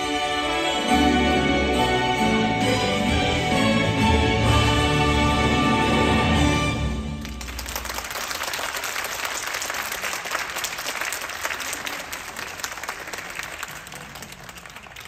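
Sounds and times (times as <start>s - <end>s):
audience applauding: 7.0s - 15.0s.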